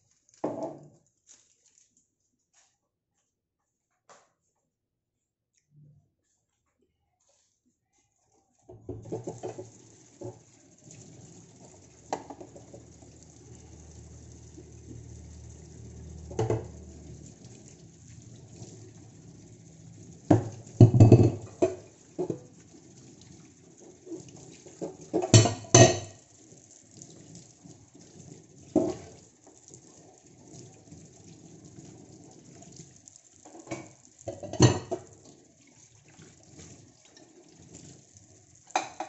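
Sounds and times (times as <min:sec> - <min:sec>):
dishes and pots clattering: 0:08.7 - 0:10.4, 0:20.3 - 0:22.4, 0:24.7 - 0:26.2, 0:28.8 - 0:29.1, 0:33.5 - 0:35.1, 0:38.7 - 0:39.0.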